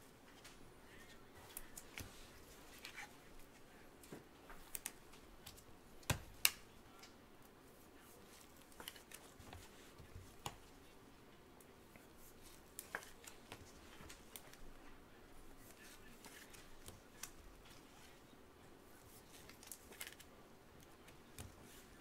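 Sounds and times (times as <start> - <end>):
trading cards clicking and snapping: 4.6 - 7.2, 16.1 - 17.4, 19.3 - 20.3.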